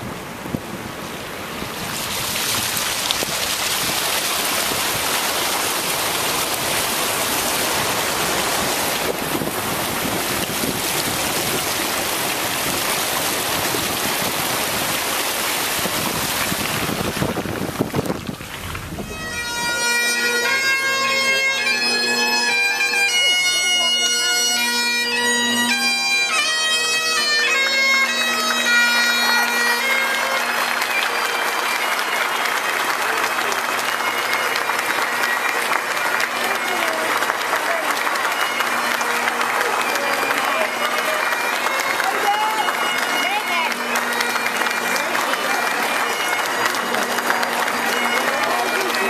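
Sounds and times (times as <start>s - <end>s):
heavy rain: 0.0s - 49.0s
vehicle ploughing through water: 1.0s - 19.4s
bagpipe tune with drones: 18.6s - 49.0s.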